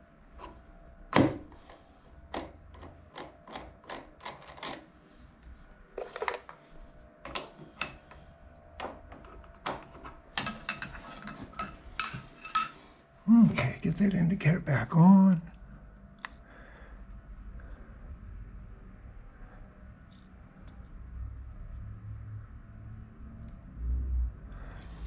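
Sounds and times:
metal tooling clicks and knocks: 8.8 - 12.8
sharp metallic clinks: 10.4 - 12.9.

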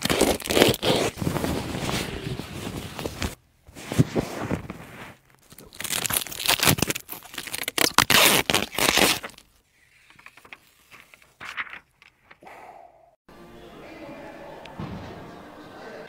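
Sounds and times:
plastic covers crinkling and tearing: 0.0 - 3.3, 5.2 - 12.4.

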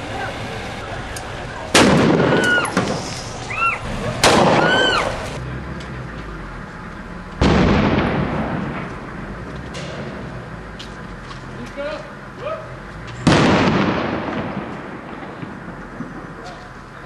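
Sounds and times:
loud weapon bangs echoing: 1.7 - 3.0, 4.2 - 4.8, 13.2 - 16.2
high whistles rising and falling: 2.1 - 5.4.

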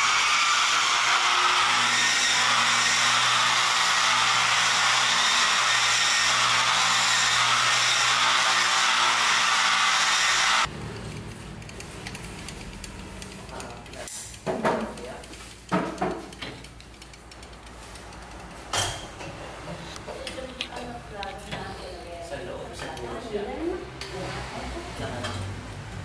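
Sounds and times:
electric polisher buffing stone: 0.0 - 10.7.

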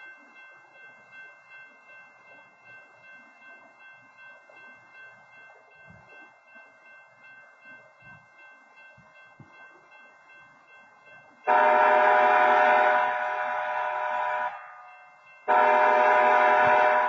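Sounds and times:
railroad crossing horn blast: 11.5 - 14.9, 15.5 - 17.0.

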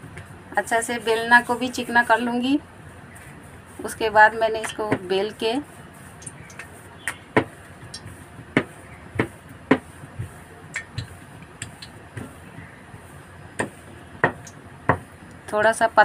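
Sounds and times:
rolling pin knocking on stone: 13.6 - 15.1.

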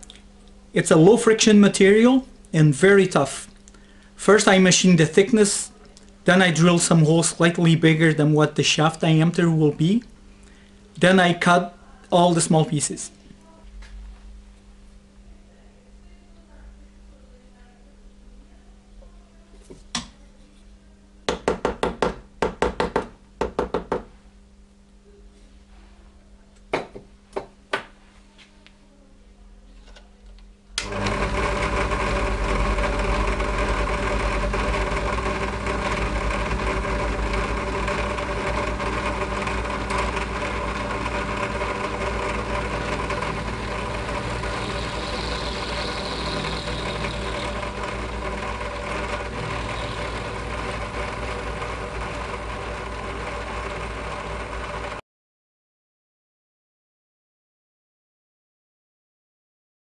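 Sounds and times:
drill press running: 30.8 - 55.0
end mill cutting nylon: 30.8 - 55.0.

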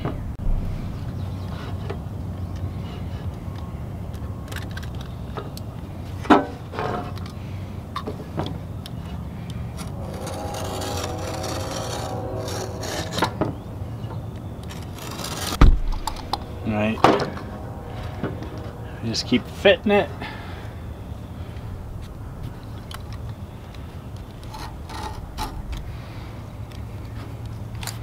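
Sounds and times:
low rumble: 0.1 - 2.4, 9.4 - 22.9
faint squeal: 9.3 - 21.9.

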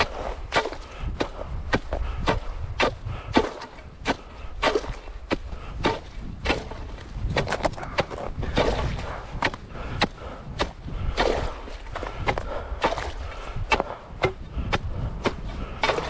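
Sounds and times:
ice chisel striking ice: 1.7 - 11.6, 15.3 - 16.0.

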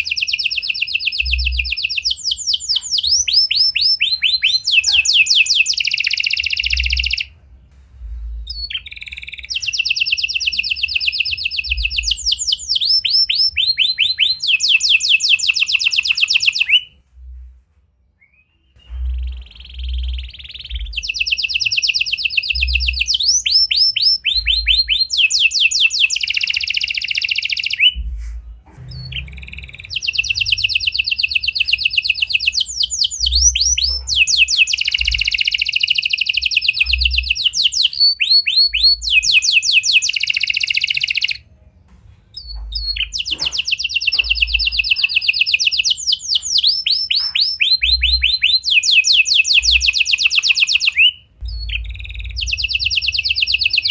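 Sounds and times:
canary singing trills: 0.0 - 7.4, 8.0 - 17.0, 18.2 - 41.5, 42.3 - 53.9.

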